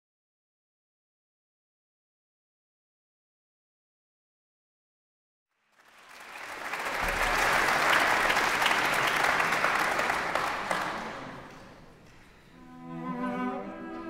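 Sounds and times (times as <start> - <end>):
audience applauding: 5.5 - 12.5.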